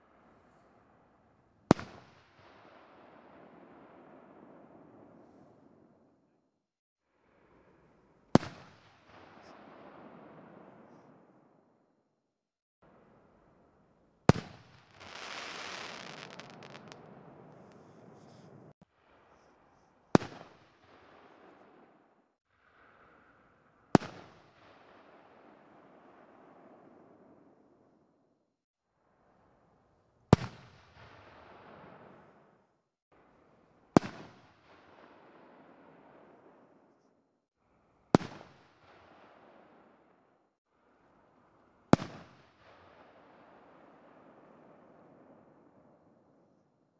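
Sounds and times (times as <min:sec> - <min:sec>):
firework bangs with rolling echo: 0:01.7 - 0:05.3, 0:14.3 - 0:18.8, 0:20.1 - 0:22.0, 0:34.0 - 0:36.6, 0:38.2 - 0:39.8, 0:42.0 - 0:45.2
echo of firework burst: 0:14.3 - 0:18.7.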